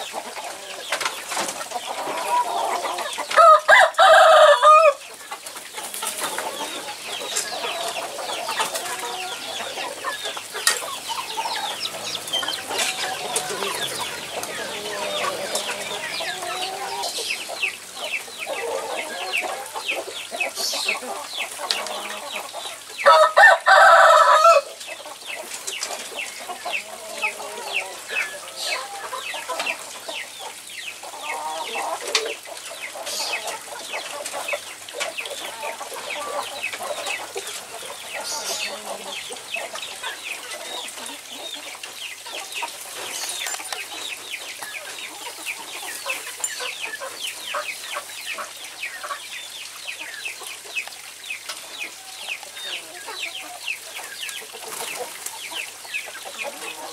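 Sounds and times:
chickens clucking: 0:00.0 - 0:56.9
rooster crowing: 0:03.4 - 0:05.0, 0:23.0 - 0:24.7.

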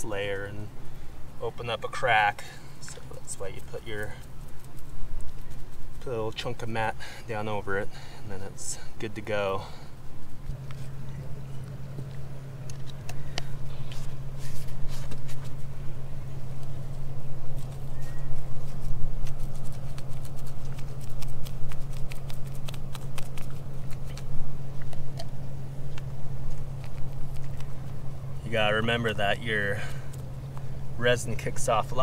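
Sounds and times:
steady low hum: 0:00.0 - 0:32.0
brush dabbing resin: 0:17.5 - 0:24.4.

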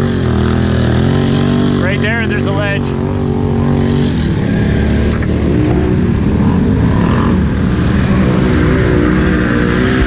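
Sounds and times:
atv engine revving: 0:00.0 - 0:10.0.

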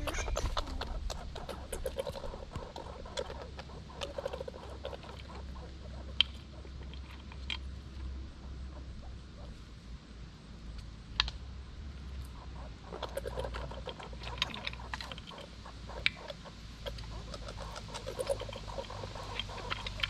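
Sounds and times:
squirrel gnawing a nut shell: 0:00.2 - 0:08.2, 0:12.2 - 0:20.0.

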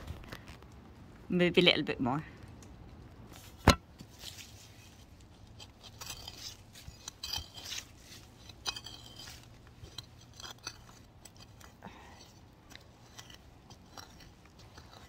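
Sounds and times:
trowel scraping soil: 0:03.3 - 0:15.0.

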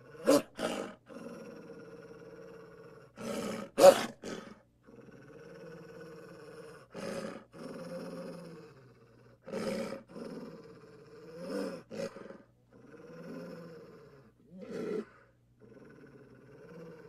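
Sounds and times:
cartoon wolf growling: 0:00.0 - 0:17.0.

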